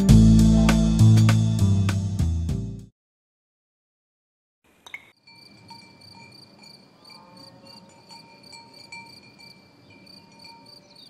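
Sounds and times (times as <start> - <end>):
faint outdoor hiss: 4.7 - 11.0
insects chirping: 4.8 - 11.0.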